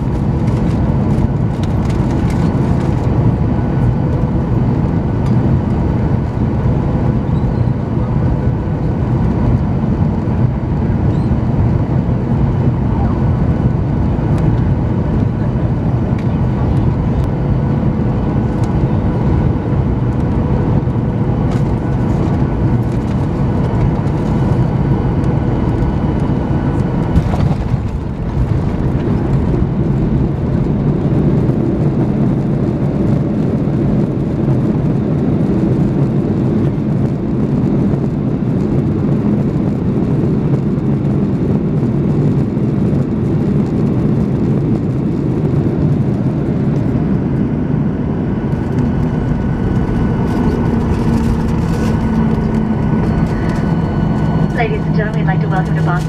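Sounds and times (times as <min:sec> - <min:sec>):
heavy rumble of runway rollout: 0:00.0 - 0:56.0
jet engines humming with whine: 0:00.0 - 0:56.0.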